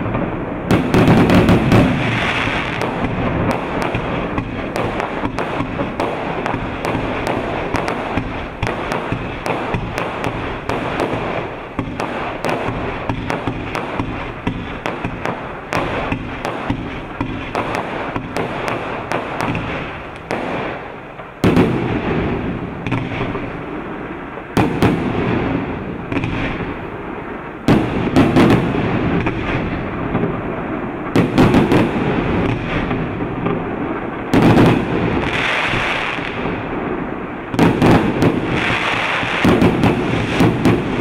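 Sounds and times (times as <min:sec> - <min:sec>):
firework volley of reports: 0:00.0 - 0:41.0
fireworks rattling and crackling: 0:00.0 - 0:41.0.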